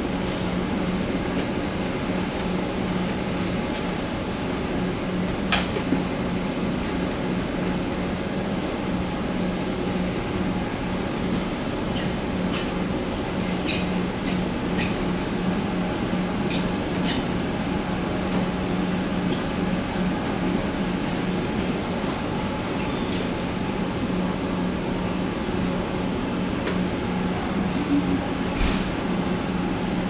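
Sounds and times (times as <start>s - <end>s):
train humming at platform: 0.0s - 30.0s.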